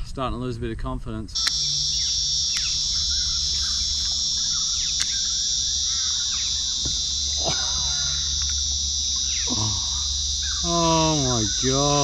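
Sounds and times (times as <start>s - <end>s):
cicadas droning: 1.3s - 12.0s
sharp click: 1.4s - 5.3s, 8.4s - 9.3s
short bird calls: 1.5s - 12.0s.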